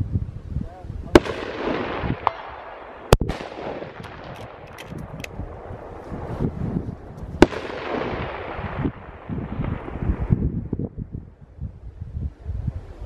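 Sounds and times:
rifle shots with rolling echo: 1.1s - 6.3s, 7.4s - 10.4s.

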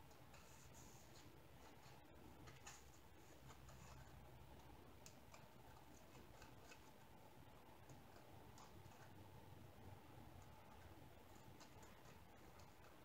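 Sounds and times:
paper rustling: 0.1s - 4.4s.

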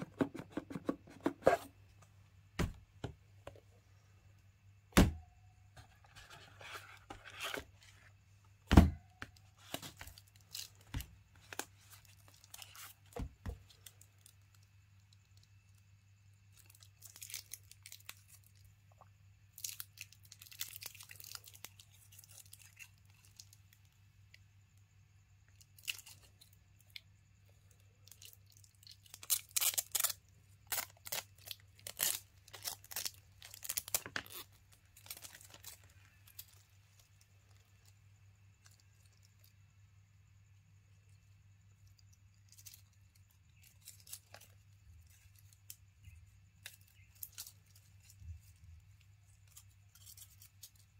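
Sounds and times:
plastic film crinkling and tearing: 19.6s - 23.5s, 28.1s - 36.6s.

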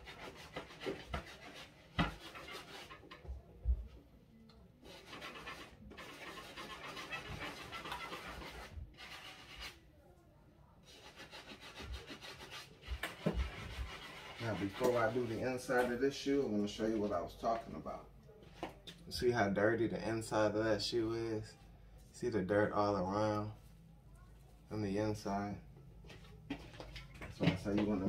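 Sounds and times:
brush scrubbing a sneaker: 0.0s - 3.1s, 4.9s - 9.8s, 10.8s - 16.2s.

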